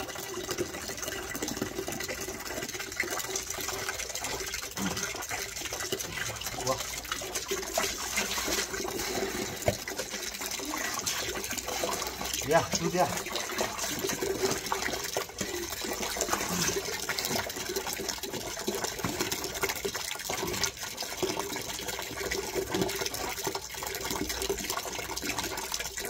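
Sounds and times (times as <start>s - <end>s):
soapy squelching and splashing: 3.7s - 21.2s.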